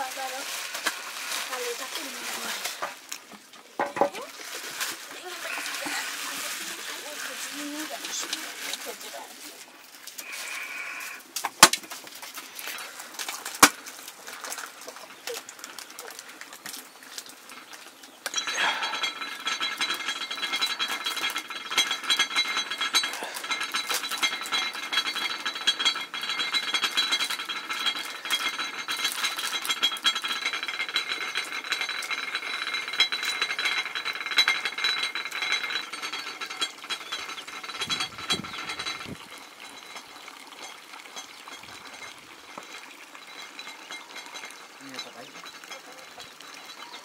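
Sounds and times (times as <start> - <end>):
rapid metallic rattle: 3.8 - 9.4, 17.2 - 47.0.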